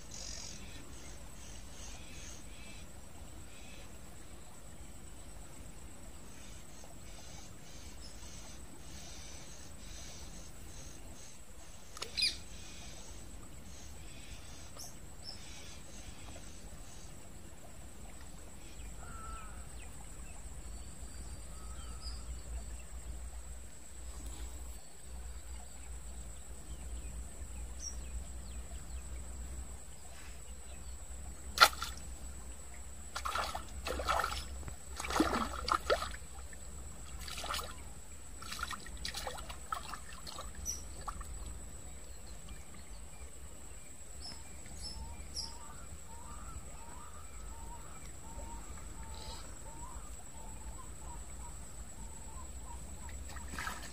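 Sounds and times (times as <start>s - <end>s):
faint bird chirps: 0.0s - 3.9s, 6.3s - 17.2s, 18.6s - 23.2s, 44.2s - 53.9s
fish splashing in water: 31.5s - 32.2s, 33.1s - 41.4s, 53.2s - 53.9s.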